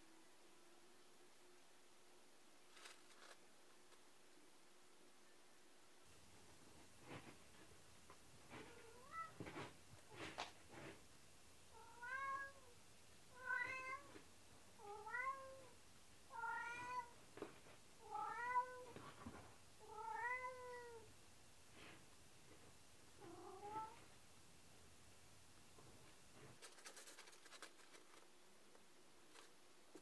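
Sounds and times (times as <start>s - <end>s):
cat meowing: 13.4s - 14.2s.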